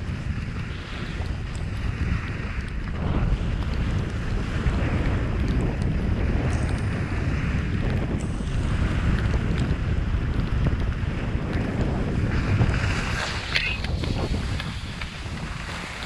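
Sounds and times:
wind rushing over microphone: 0.0 - 16.0
skis hissing on snow: 12.8 - 15.9.

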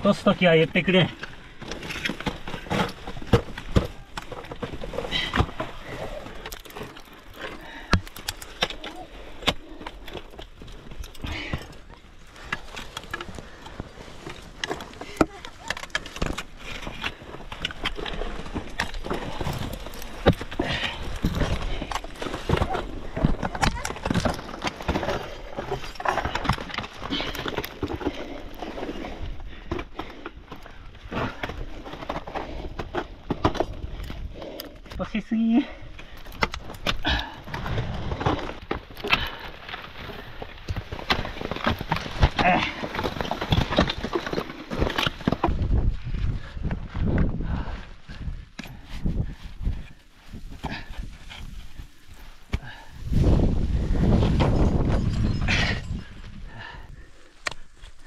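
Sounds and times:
metal gear clattering on rock: 54.3 - 56.2.

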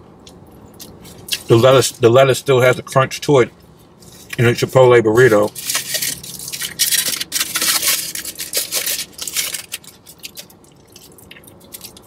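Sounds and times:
foil wrapper crinkling: 5.2 - 12.0
biting and chewing: 5.5 - 12.0.

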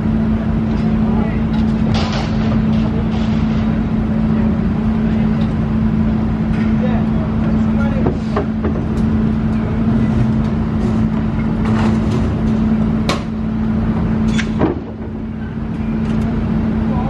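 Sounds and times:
engine drone: 0.0 - 17.0
metal knocks and clanks: 1.5 - 4.0, 8.0 - 13.4, 14.2 - 15.5.

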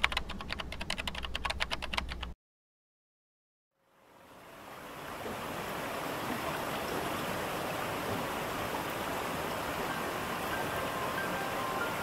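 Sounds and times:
waterfall rushing: 4.5 - 12.0.

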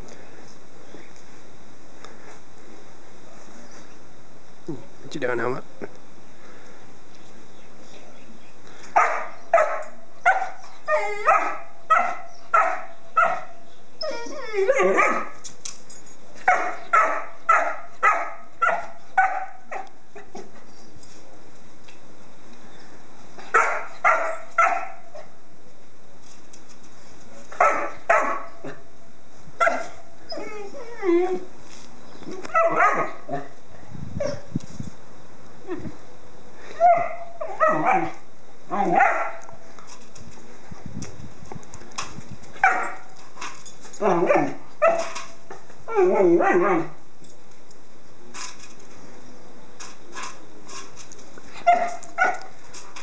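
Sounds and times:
puppy barking: 9.0 - 10.6, 11.2 - 13.6, 14.8 - 15.3, 16.5 - 19.9, 23.5 - 25.1, 27.6 - 28.5, 29.6 - 30.0, 32.6 - 33.2, 38.9 - 39.5, 42.6 - 43.1, 44.3 - 45.2.

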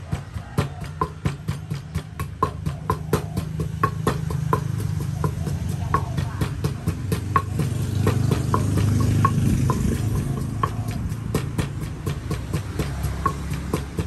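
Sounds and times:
wooden pestle pounding in mortar: 0.0 - 14.0.

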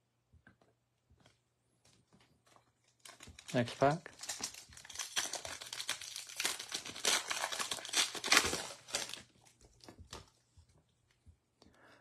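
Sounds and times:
foil wrapper crinkling: 2.8 - 10.3.

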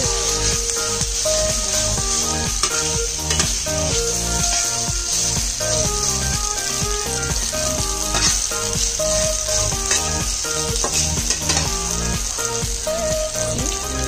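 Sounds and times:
food sizzling in a wok: 0.0 - 14.0
metal spatula scraping a pan: 8.0 - 8.6.

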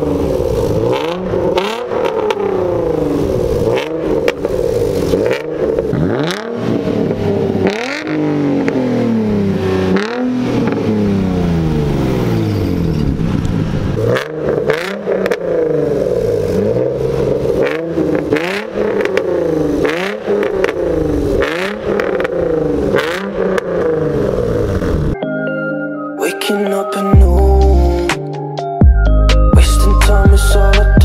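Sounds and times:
car engines revving: 0.0 - 25.2
music: 25.2 - 31.0.

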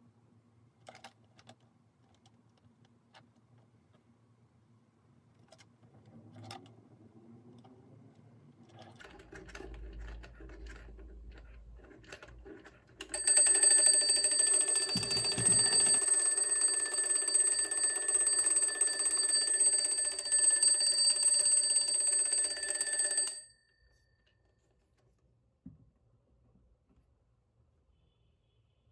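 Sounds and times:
clock handling sounds: 13.0 - 23.4
alarm clock bells ringing: 13.1 - 23.6.

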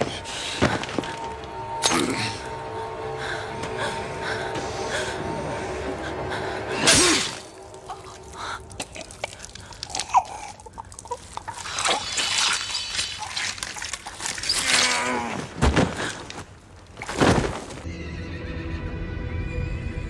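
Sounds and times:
sharp knocks and crunches: 11.8 - 17.8.

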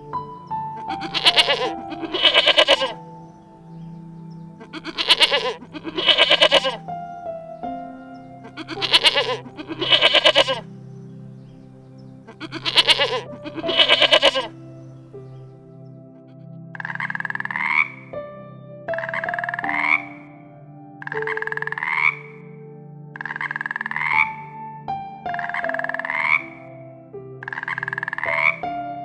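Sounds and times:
background music: 0.0 - 29.0
animal quavering cries: 0.8 - 3.0, 4.6 - 6.8, 8.4 - 10.7, 12.3 - 14.6, 16.8 - 18.1, 18.9 - 20.2, 21.0 - 22.4, 23.2 - 24.4, 25.4 - 26.6, 27.4 - 28.6.

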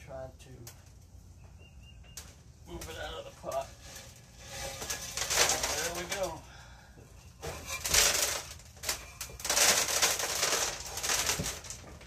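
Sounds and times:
gritty soil scraping and crunching: 2.7 - 6.5, 7.3 - 12.0.

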